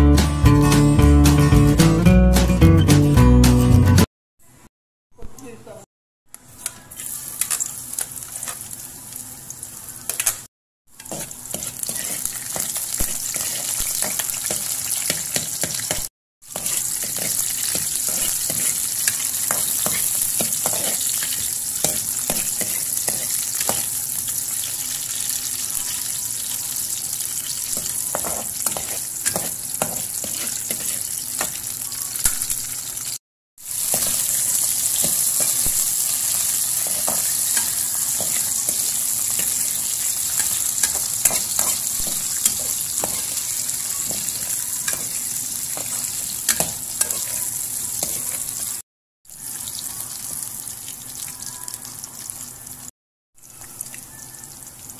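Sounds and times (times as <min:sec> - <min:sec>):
food sizzling in hot oil: 0:06.6 - 0:54.9
utensil stirring against pan: 0:11.0 - 0:24.0, 0:27.4 - 0:31.7, 0:33.7 - 0:48.8.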